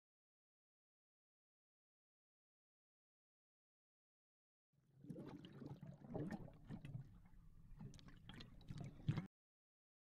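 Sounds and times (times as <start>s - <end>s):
water sloshing and splashing: 5.0s - 9.3s
water dripping: 5.1s - 9.3s.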